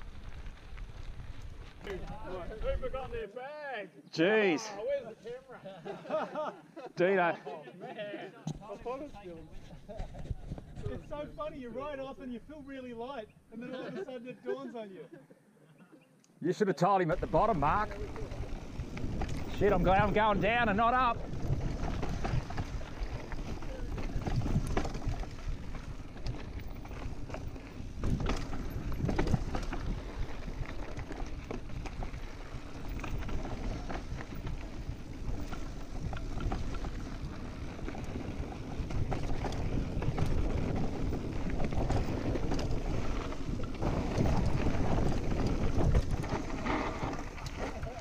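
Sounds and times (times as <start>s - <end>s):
bike rattling over bumps: 17.2s - 48.0s
tyres rolling over dirt and stones: 17.2s - 48.0s
wind rushing over microphone: 17.3s - 48.0s.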